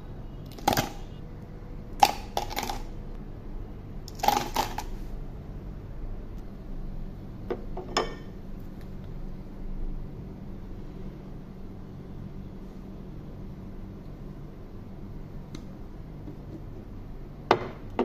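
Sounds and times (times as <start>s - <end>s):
ice cubes rattling against knife: 2.0s - 2.9s.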